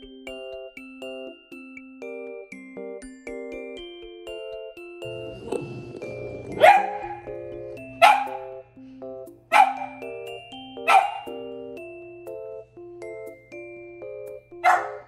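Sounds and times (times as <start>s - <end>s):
background music: 0.0s - 15.0s
puppy barking: 6.5s - 8.6s, 9.5s - 10.1s, 10.8s - 11.5s, 14.6s - 15.0s.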